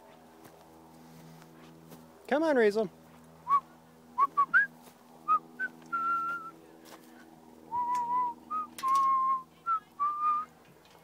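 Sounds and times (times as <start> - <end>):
person whistling: 4.2 - 4.7, 5.3 - 6.5, 7.7 - 9.4.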